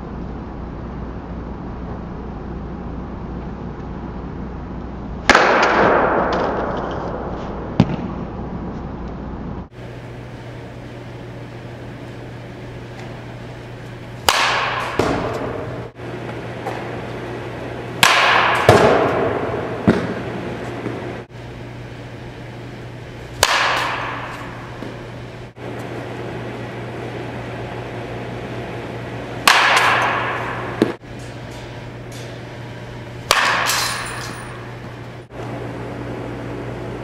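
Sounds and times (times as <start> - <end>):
steady low hum: 0.0 - 37.0
metal bat hitting baseball: 5.2 - 8.1, 14.2 - 15.9, 18.0 - 20.2, 23.4 - 25.1, 29.4 - 32.4, 33.2 - 35.0.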